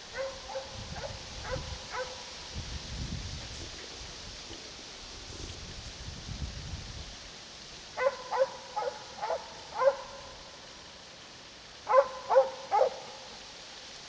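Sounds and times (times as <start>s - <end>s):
hound barking: 0.1s - 2.3s, 8.0s - 10.3s, 11.8s - 13.3s.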